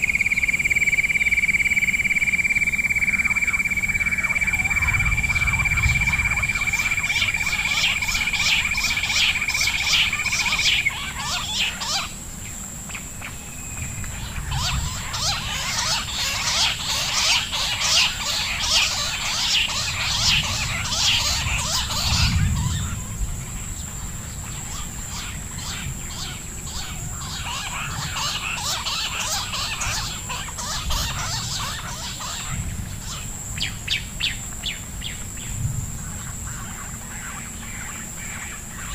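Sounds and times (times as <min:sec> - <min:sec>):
quail chirping: 0:00.0 - 0:12.2, 0:14.1 - 0:23.1, 0:24.4 - 0:35.2
high-pitched whine: 0:00.0 - 0:35.3.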